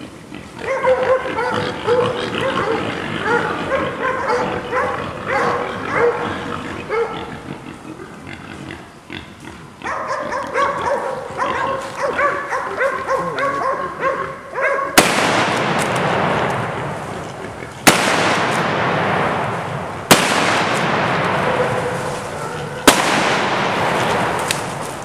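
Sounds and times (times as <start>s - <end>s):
dogs barking and baying: 0.5s - 8.3s, 9.7s - 18.7s, 20.8s - 25.0s
loud steady hissing noise: 13.8s - 25.0s
revolver gunshot: 15.0s - 17.0s, 17.8s - 22.0s, 22.8s - 25.0s.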